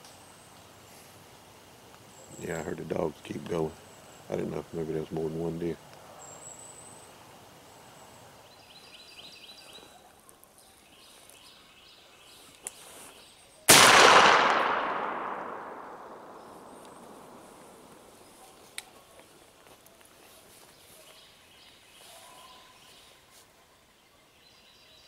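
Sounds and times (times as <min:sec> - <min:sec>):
echoing gunshot: 0:13.7 - 0:18.2
faint high bird chirps: 0:20.8 - 0:25.0.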